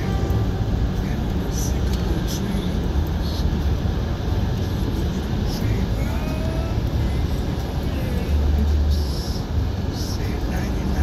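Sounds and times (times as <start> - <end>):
car road noise rumble: 0.0 - 11.0.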